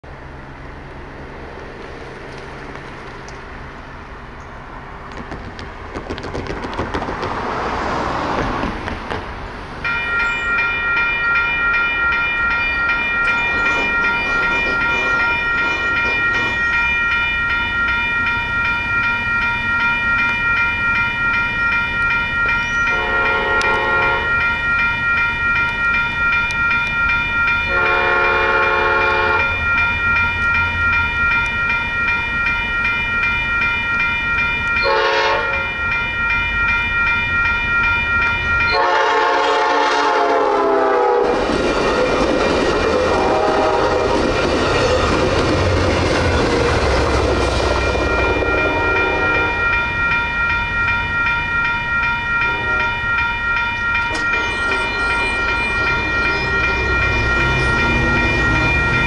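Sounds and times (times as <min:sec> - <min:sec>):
vehicle passing: 0:05.8 - 0:09.8, 0:55.4 - 0:59.0
railroad crossing bell ringing: 0:09.6 - 0:59.0
train horn blasts: 0:22.9 - 0:24.4, 0:27.7 - 0:29.6, 0:34.8 - 0:35.7, 0:38.7 - 0:41.4, 0:43.0 - 0:44.2, 0:48.0 - 0:49.7, 0:52.4 - 0:53.0.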